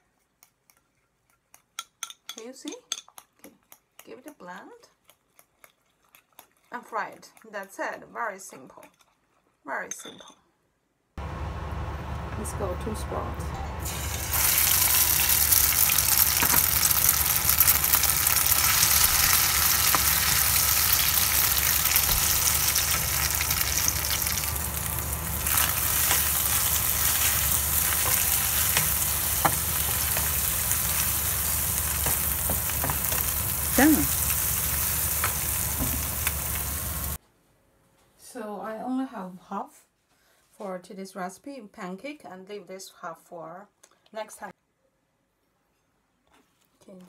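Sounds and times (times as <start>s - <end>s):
egg sizzling in hot oil: 13.9s - 37.2s.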